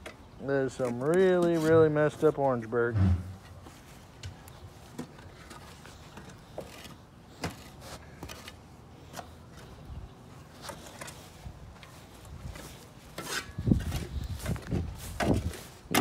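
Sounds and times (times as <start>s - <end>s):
footsteps on dirt and grass: 10.6s - 16.0s.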